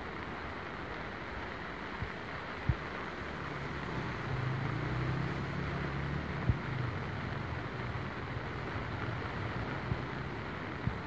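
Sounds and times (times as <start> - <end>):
floodwater rushing: 0.0 - 11.0
vehicle engine humming: 2.9 - 11.0.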